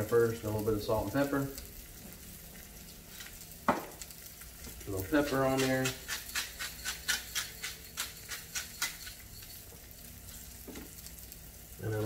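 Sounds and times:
patties sizzling on griddle: 0.0s - 12.0s
bottle set down knock: 3.7s - 3.9s
pepper shaker shaking: 5.1s - 9.6s.

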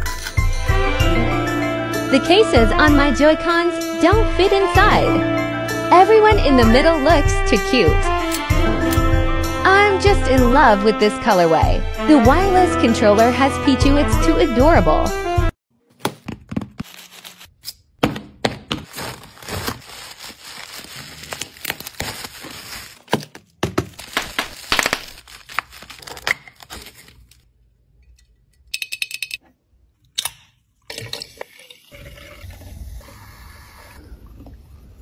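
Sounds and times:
plastic packaging crinkling: 16.7s - 17.6s, 18.7s - 27.5s
tape peeling and tearing: 18.9s - 23.1s, 24.0s - 27.4s.

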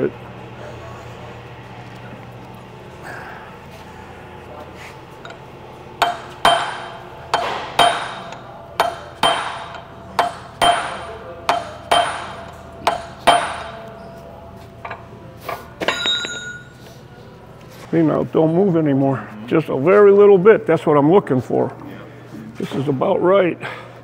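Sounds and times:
hammer striking chisel on metal: 6.0s - 14.0s, 15.8s - 16.7s
light metallic clinks: 15.8s - 16.8s.

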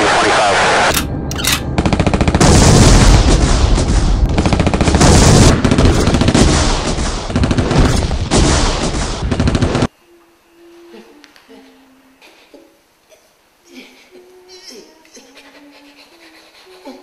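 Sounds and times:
rapid machine-gun fire: 1.5s - 9.9s.

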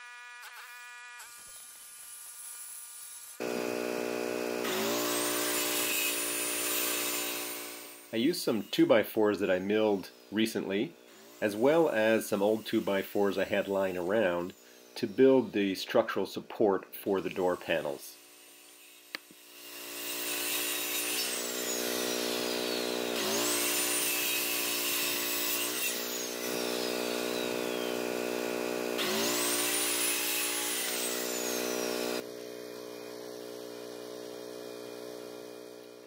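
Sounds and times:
circular saw cutting wood: 0.0s - 36.0s.

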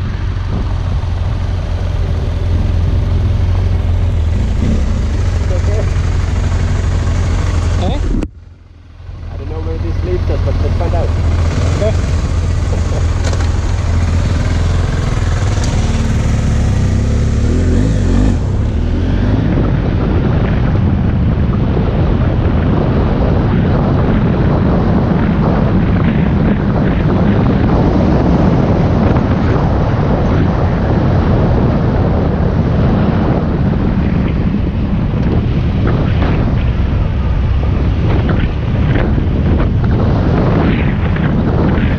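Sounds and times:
motorcycle engine running: 0.0s - 41.9s
wind rushing over microphone: 0.0s - 41.9s.

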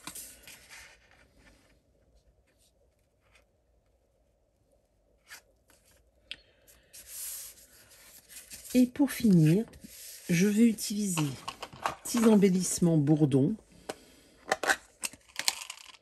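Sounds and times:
paper rustling: 6.8s - 12.6s.

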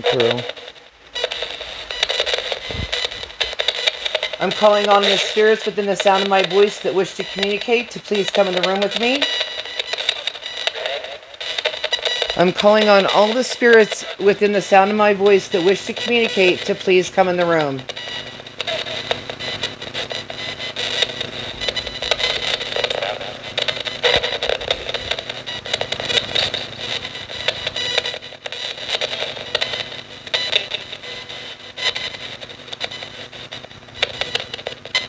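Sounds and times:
choppy radio static: 0.0s - 35.0s
snatches of radio sound: 0.0s - 35.0s.

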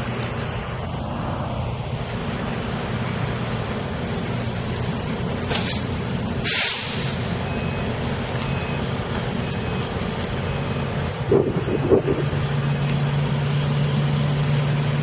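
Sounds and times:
electric locomotive humming: 0.0s - 15.0s
air brake hisses: 5.5s - 7.4s.

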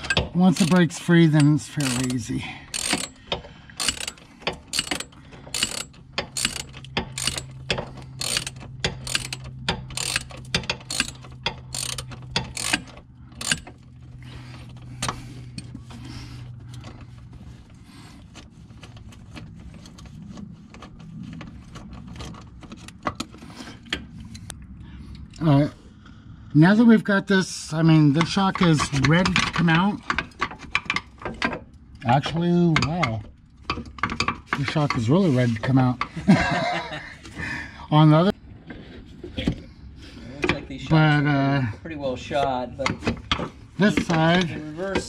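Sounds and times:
hand ratchet clicking: 0.0s - 13.8s.

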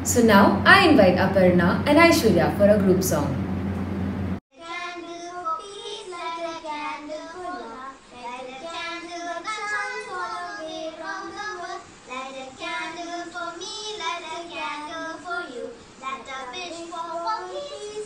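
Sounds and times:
girls singing together: 4.6s - 18.0s.

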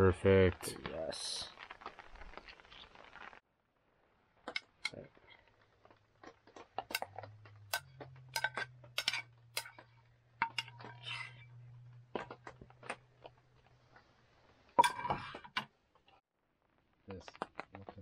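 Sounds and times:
metal utensils and dishes clinking: 6.8s - 12.3s, 14.8s - 15.7s.

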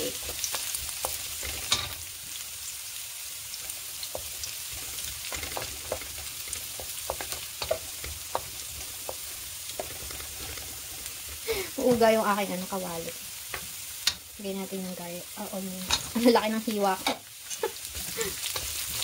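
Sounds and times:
garlic sizzling in hot oil: 0.0s - 19.0s
wooden spatula scraping a pan: 0.1s - 2.0s, 4.0s - 12.7s, 15.8s - 19.0s.

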